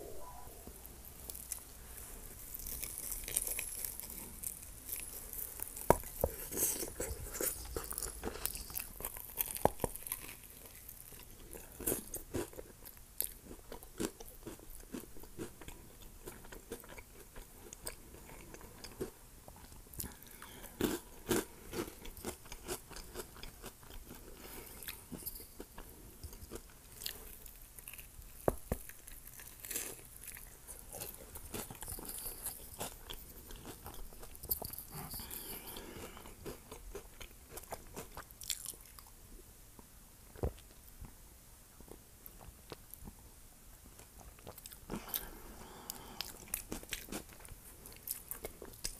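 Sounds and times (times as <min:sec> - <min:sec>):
chewing crunches: 0:01.2 - 0:39.1, 0:44.0 - 0:48.9.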